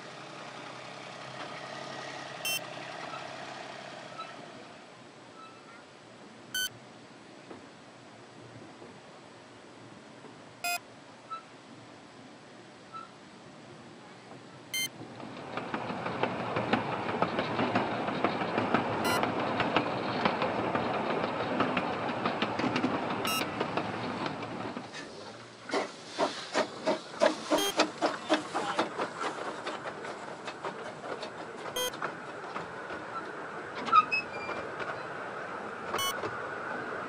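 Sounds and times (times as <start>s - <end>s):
wheel clicks over rail joints: 14.9s - 37.0s
train coaches rattling: 15.0s - 37.0s.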